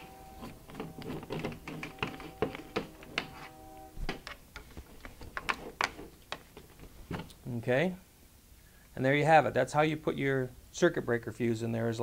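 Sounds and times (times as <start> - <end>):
faint steady tone: 0.0 - 1.2, 1.9 - 4.1.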